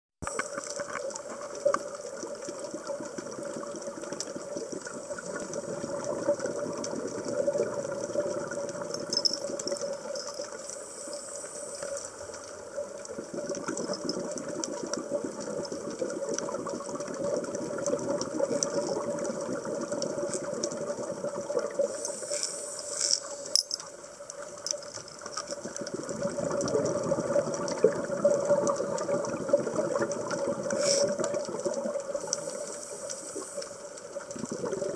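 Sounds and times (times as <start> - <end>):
exhaled air bubbling: 0.2 - 34.9
diver breathing through regulator: 30.7 - 31.2.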